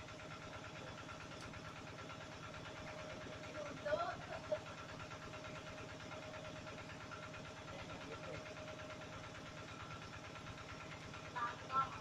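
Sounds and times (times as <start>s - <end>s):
small engine running: 0.0s - 12.0s.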